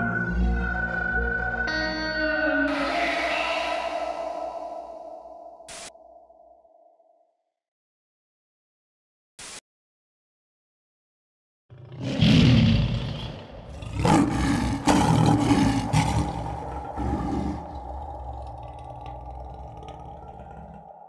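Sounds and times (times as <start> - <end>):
steady tone: 0.6 - 7.0
lion roaring: 11.7 - 21.0.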